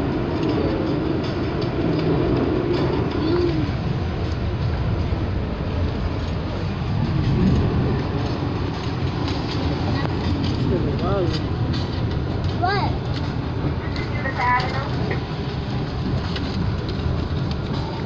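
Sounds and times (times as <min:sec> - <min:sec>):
train wheels rumbling on rail: 0:00.0 - 0:18.0.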